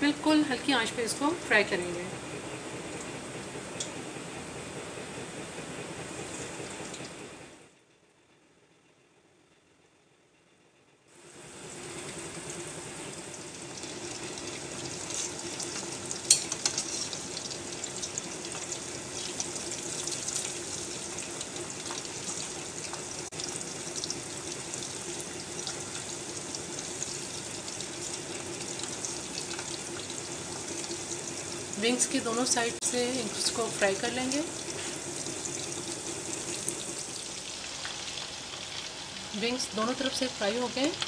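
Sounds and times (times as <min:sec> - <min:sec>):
chicken deep-frying in oil: 0:11.1 - 0:41.0.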